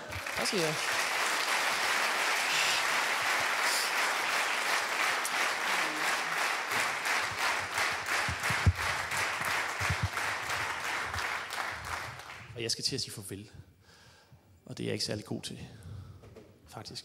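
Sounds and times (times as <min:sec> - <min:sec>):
audience applauding: 0:00.0 - 0:12.5.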